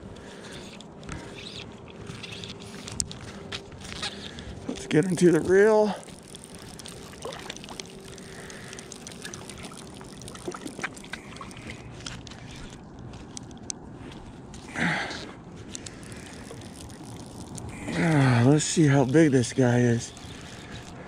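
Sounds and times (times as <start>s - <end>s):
glove handling noise: 0.0s - 21.0s
fishing reel clicking: 0.2s - 4.4s, 15.7s - 21.0s.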